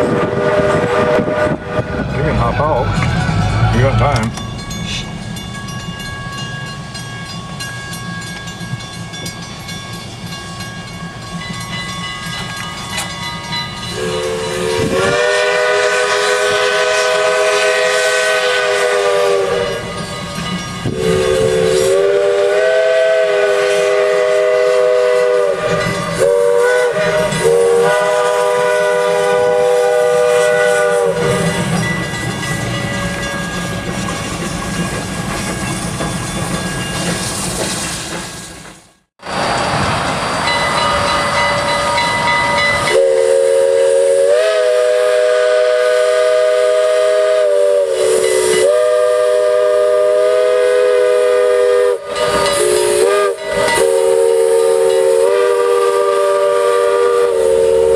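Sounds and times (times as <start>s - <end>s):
steam locomotive whistle blasts: 0.0s - 5.1s, 13.8s - 20.2s, 20.8s - 32.1s, 39.3s - 57.9s.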